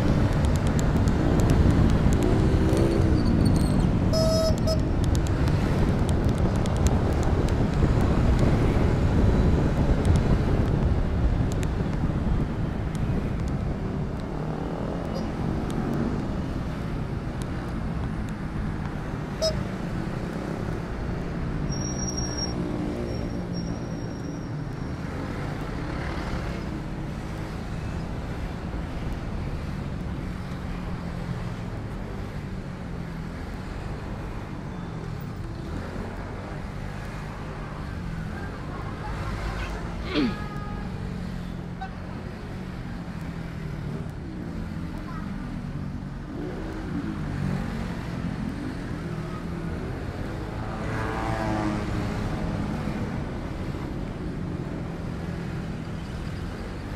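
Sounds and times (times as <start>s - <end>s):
vehicle engine and road noise: 0.0s - 56.9s.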